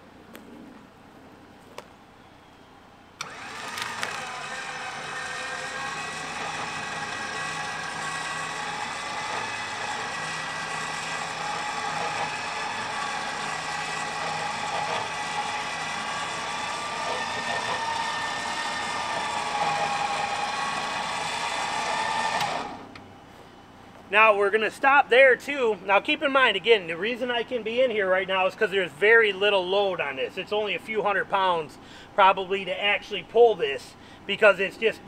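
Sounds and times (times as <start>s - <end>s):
electric winch whining: 2.2s - 23.2s.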